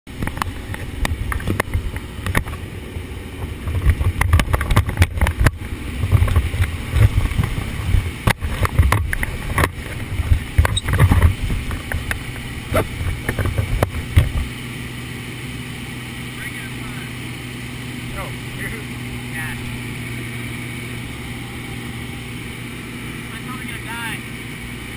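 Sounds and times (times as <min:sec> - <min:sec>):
wind buffeting on microphone: 0:00.1 - 0:14.7
small plane engine drone: 0:00.1 - 0:24.9.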